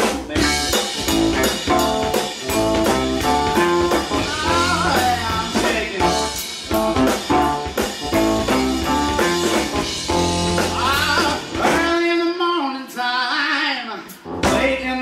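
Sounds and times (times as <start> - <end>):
electric bass: 0.0 - 12.0, 14.2 - 15.0
drum kit: 0.0 - 13.0, 14.0 - 15.0
keyboard: 0.3 - 11.9
electric guitar with sliding lead: 0.4 - 11.9.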